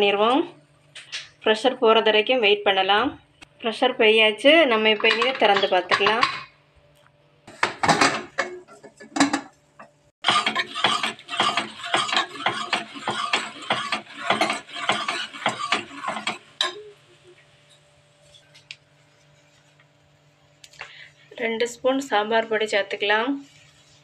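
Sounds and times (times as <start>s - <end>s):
ladle stirring and scraping pot: 4.6s - 6.5s, 7.5s - 17.0s
pot lid clattering: 7.5s - 9.5s.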